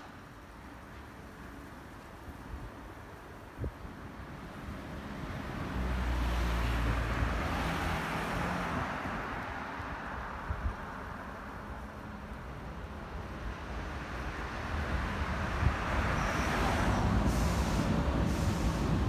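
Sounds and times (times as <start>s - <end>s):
electric train rumbling: 9.8s - 19.0s
high squeal: 16.1s - 18.8s.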